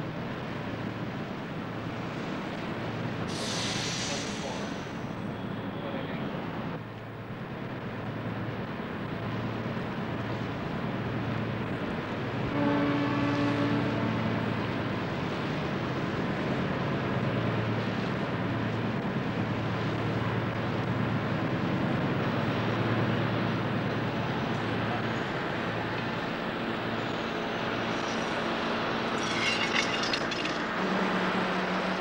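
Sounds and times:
ship's horn: 12.4 - 14.6.

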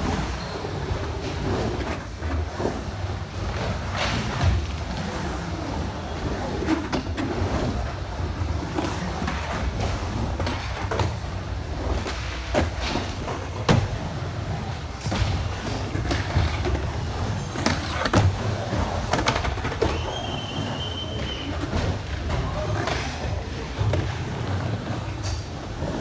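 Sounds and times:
skateboard wheels rolling: 0.0 - 26.0
skateboard clacks and hits: 8.7 - 14.1, 14.7 - 20.5.

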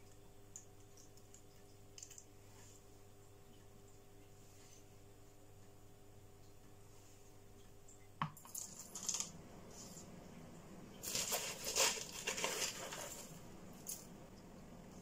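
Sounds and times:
bark chips clattering into plastic pot: 8.4 - 9.3, 11.0 - 14.1.

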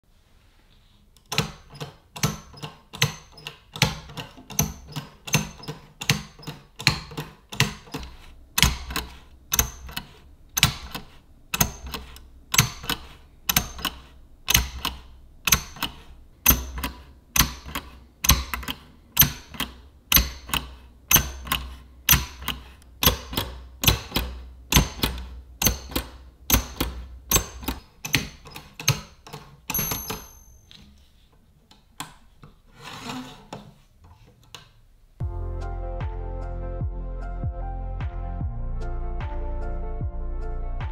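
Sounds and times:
typewriter clacking: 1.3 - 30.7
short high ring: 29.7 - 30.7.

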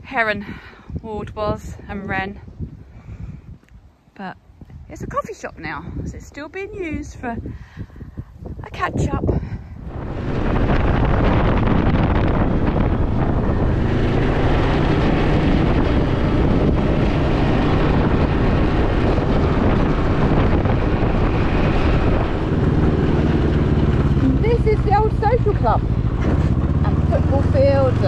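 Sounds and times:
wind buffeting microphone: 0.0 - 28.0
motorcycle engine running: 9.8 - 28.0.

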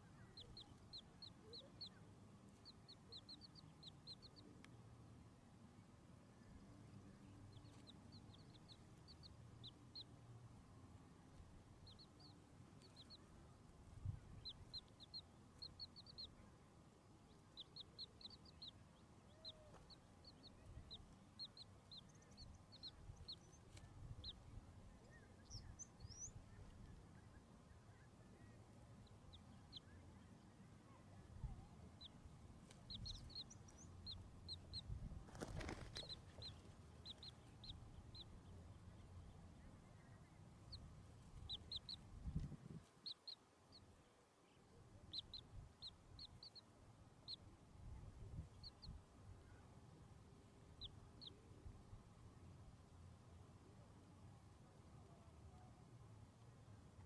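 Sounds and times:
chicks peeping: 0.1 - 4.6, 7.3 - 10.2, 11.3 - 16.4, 17.2 - 27.4, 31.4 - 39.2, 39.9 - 43.4, 45.0 - 49.0, 50.7 - 51.4.

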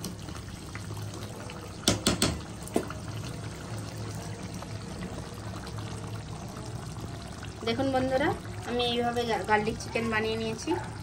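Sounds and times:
gravy simmering and bubbling: 0.0 - 11.0
spatula knocking against pan: 1.8 - 2.4.

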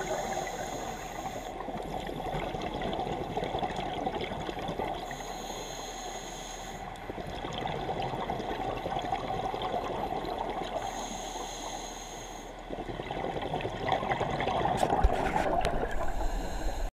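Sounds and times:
regulator bubbling underwater: 0.0 - 5.2, 7.0 - 11.0, 12.6 - 16.8.

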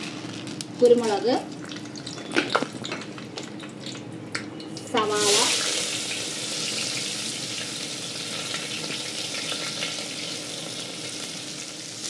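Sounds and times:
small crackles: 0.0 - 4.0
onions sizzling in hot oil: 4.8 - 12.0.

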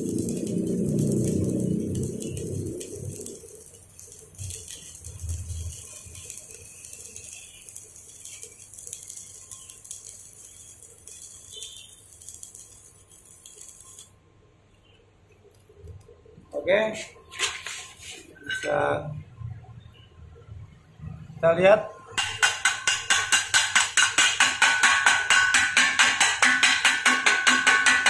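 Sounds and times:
welding arc crackling: 0.0 - 14.2, 22.2 - 28.0.

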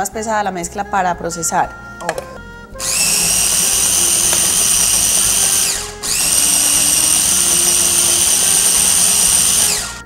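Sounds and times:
food processor motor whining: 2.8 - 10.0.

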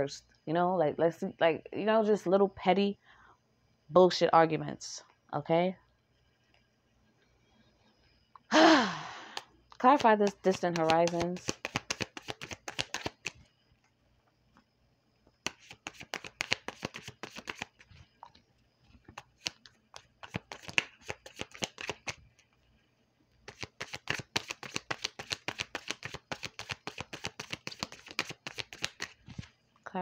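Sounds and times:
cards being shuffled: 9.8 - 13.4, 15.4 - 17.9, 19.1 - 22.2, 23.4 - 29.5.

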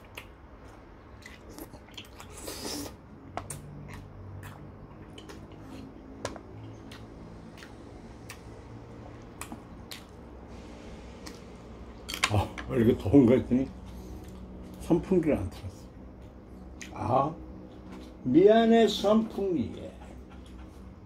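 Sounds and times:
chewing with wet mouth clicks: 0.0 - 10.2, 13.8 - 14.8, 16.2 - 17.0.

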